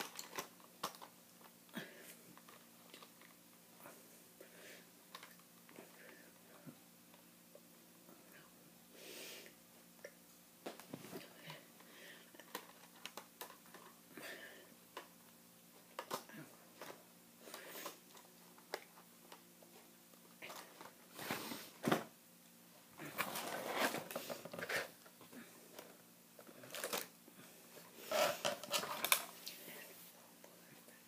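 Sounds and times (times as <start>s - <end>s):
rustling and clicking handling noise: 0.0s - 3.6s, 5.1s - 6.2s, 10.6s - 14.0s, 14.9s - 22.1s, 23.0s - 27.2s, 27.8s - 29.7s.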